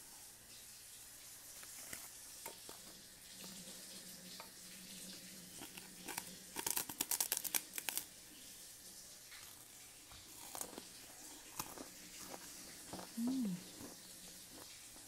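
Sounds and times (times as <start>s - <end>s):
rice cake crunching: 1.5s - 3.6s, 5.6s - 8.1s, 9.3s - 15.0s.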